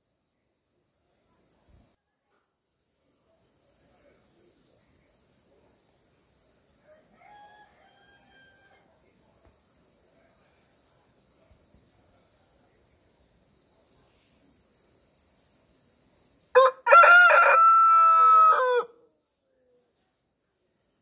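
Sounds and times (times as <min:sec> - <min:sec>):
faint high insect buzz: 0:00.0 - 0:18.1
rooster crowing: 0:06.8 - 0:08.9, 0:16.5 - 0:19.0.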